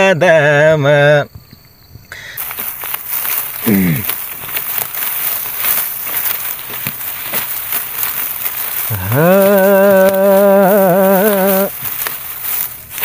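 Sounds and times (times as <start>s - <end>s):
dry grass crackling and rustling: 2.4s - 13.0s.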